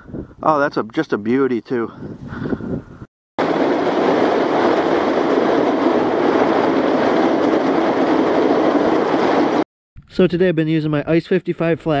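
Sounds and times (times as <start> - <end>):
sled scraping across ice: 3.4 - 9.6.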